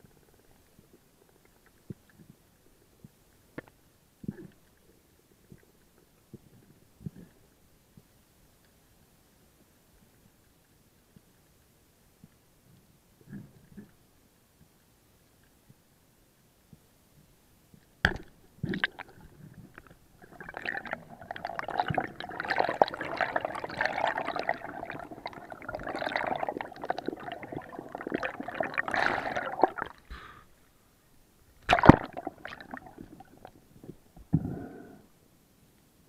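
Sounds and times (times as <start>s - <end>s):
underwater bubbling and rushing: 18.1s - 30.1s, 31.6s - 34.1s.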